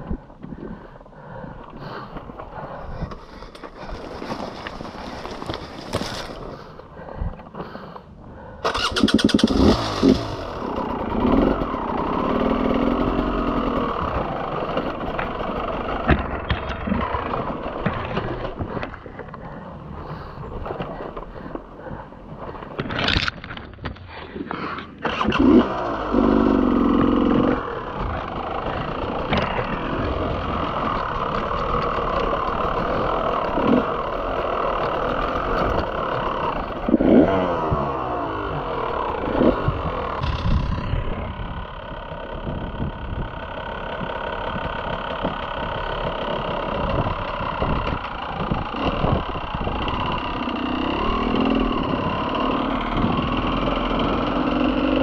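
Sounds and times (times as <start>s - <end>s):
bike knocking over rocks: 3.2s - 6.6s
dirt bike engine revving: 8.7s - 18.8s, 25.0s - 55.0s.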